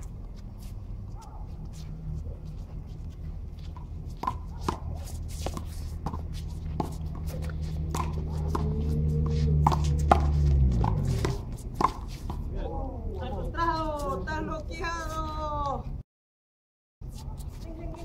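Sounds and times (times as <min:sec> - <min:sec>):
low hum: 0:00.0 - 0:14.0
sneaker footsteps shuffling: 0:00.0 - 0:15.9, 0:17.0 - 0:18.0.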